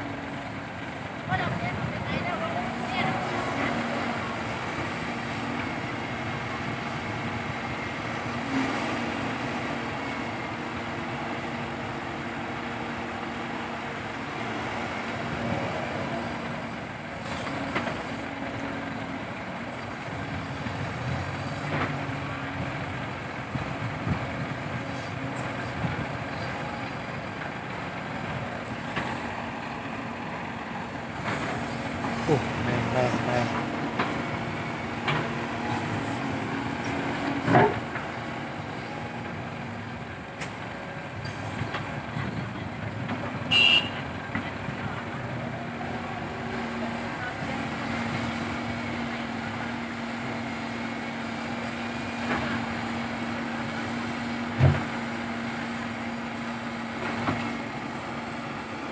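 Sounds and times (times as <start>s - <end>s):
diesel engines running: 0.0s - 58.9s.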